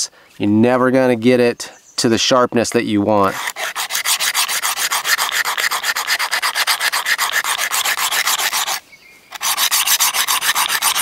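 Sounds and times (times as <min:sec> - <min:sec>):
sharpener scraping steel blade: 0:03.2 - 0:11.0.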